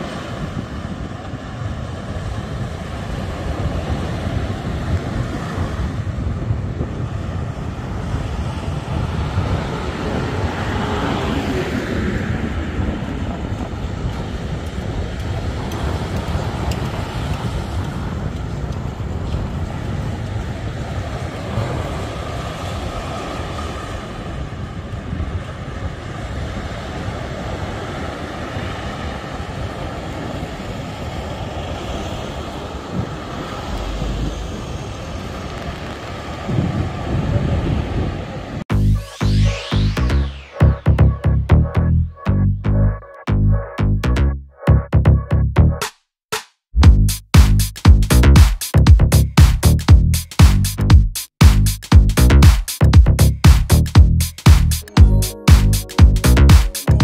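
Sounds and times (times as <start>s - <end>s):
wind buffeting microphone: 0.0s - 38.6s.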